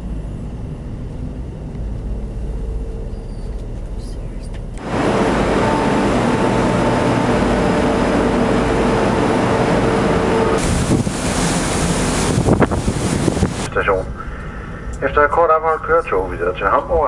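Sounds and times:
ship machinery and ventilation din: 0.0 - 17.0
wind rushing over microphone: 4.8 - 13.9.

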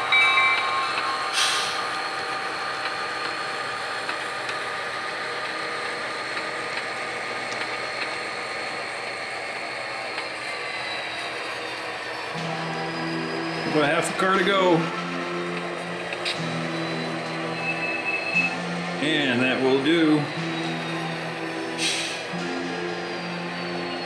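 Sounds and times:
model diesel engine sounds: 1.3 - 24.0
short air hiss: 21.8 - 22.2.

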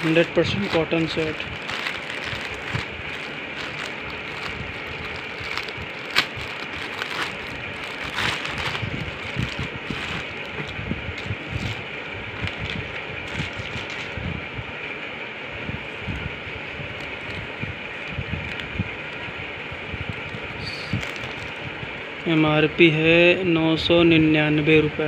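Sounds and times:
plastic packaging crinkling: 0.0 - 14.2, 16.9 - 19.2, 20.1 - 21.6.

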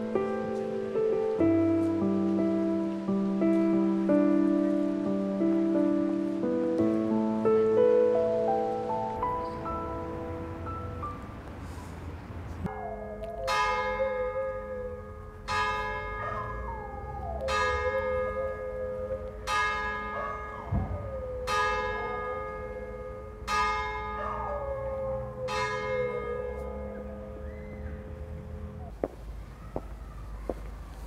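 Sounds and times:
church bell tolling: 12.7 - 28.9.

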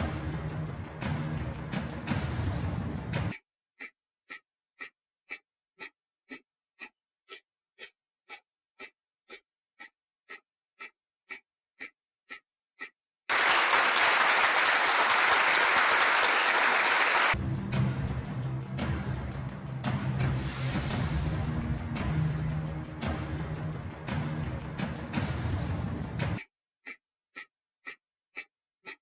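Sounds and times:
timer ticking: 0.0 - 13.0, 17.3 - 29.0.

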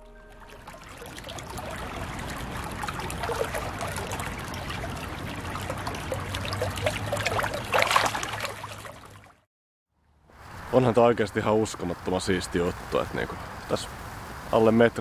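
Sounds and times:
brook water trickling: 0.0 - 10.3
fish splashing at the surface: 0.4 - 9.4.

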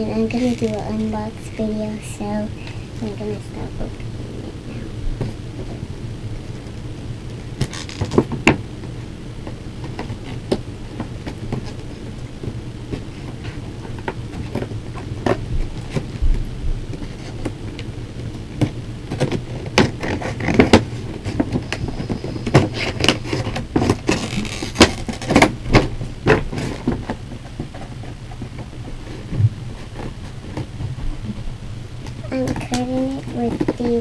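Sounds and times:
packaging crinkling and crackling: 0.0 - 1.1, 7.6 - 8.6, 19.0 - 30.8
steady low hum: 0.0 - 34.0.

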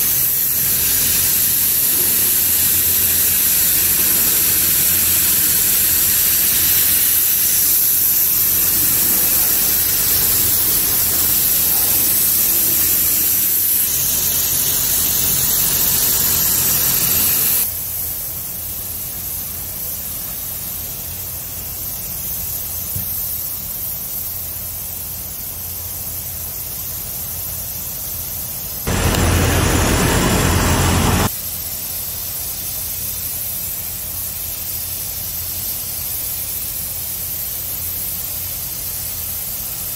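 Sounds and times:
paint spray gun hissing: 0.0 - 39.9
low air hiss: 28.9 - 31.9.

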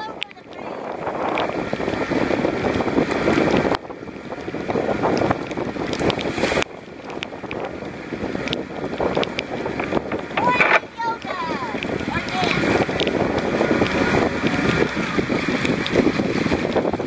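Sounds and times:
rain and water splashing: 0.0 - 17.0
storm wind buffeting microphone: 0.0 - 17.0
drops ticking on camera: 2.7 - 16.1.

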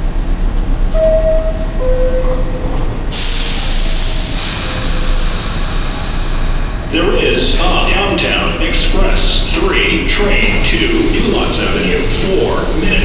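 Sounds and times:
subway train equipment running: 0.0 - 13.0
two-tone chime: 1.0 - 2.8
hiss of air: 3.1 - 6.8.

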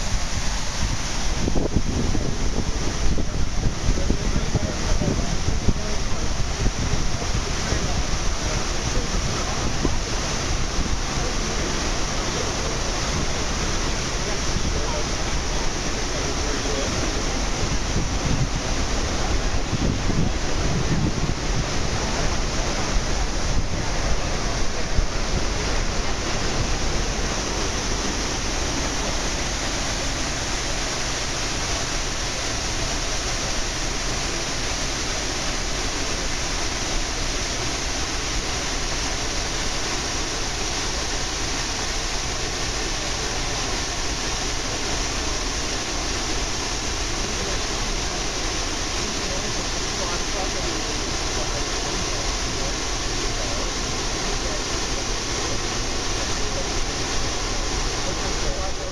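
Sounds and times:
wind buffeting microphone: 0.0 - 11.9, 12.6 - 33.0
rushing water and wind: 0.0 - 58.9.

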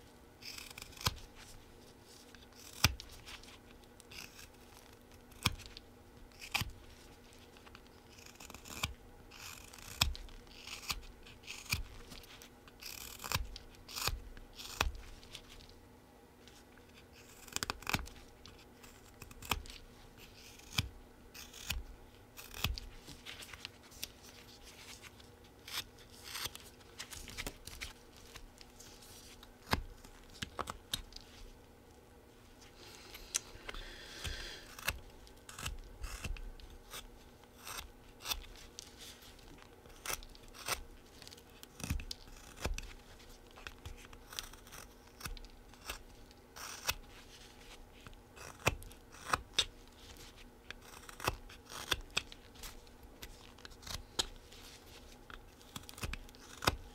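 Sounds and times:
knife cutting wood: 55.6 - 56.9.

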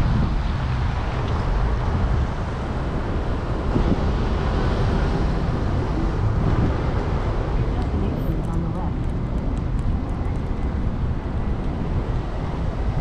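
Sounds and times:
car engine and tyres rumbling: 0.0 - 13.0
wind noise: 0.0 - 13.0.

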